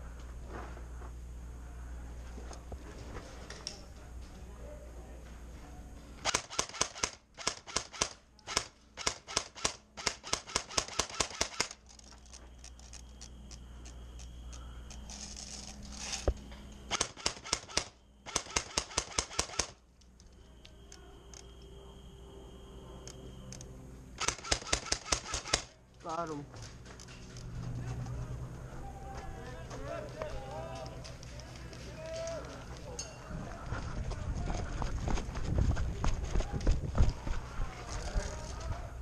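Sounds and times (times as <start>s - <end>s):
airsoft guns firing rapidly: 6.2s - 11.8s, 16.9s - 19.8s, 24.2s - 25.7s.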